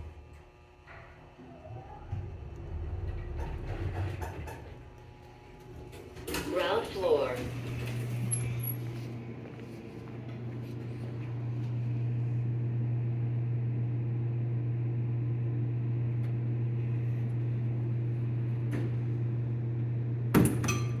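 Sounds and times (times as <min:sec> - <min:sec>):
low machine hum: 0:00.0 - 0:21.0
elevator doors clicking: 0:01.0 - 0:08.9.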